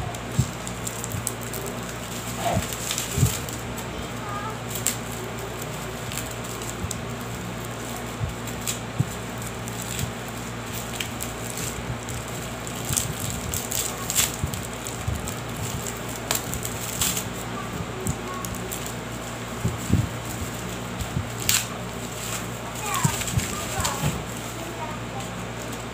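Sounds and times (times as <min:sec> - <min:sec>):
plastic packaging crinkling: 0:00.0 - 0:25.9
steady low hum: 0:00.0 - 0:25.9.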